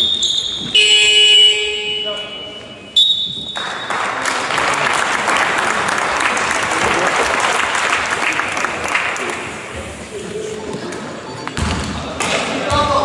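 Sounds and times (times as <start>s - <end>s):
spectators applauding: 3.6s - 9.6s.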